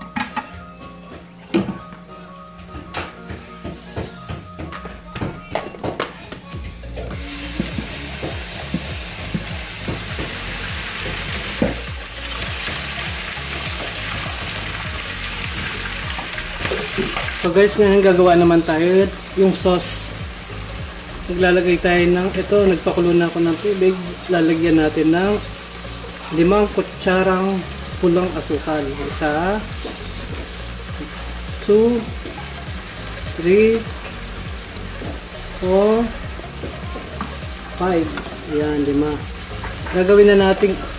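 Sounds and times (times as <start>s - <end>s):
food sizzling in hot oil: 7.1s - 40.9s.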